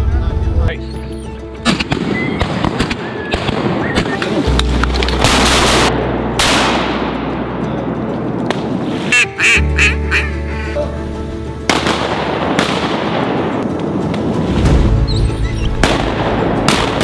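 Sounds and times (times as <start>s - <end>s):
loud background music: 0.0s - 17.0s
sharp bangs: 5.0s - 7.6s, 15.7s - 17.0s
duck call quacks: 9.1s - 10.7s.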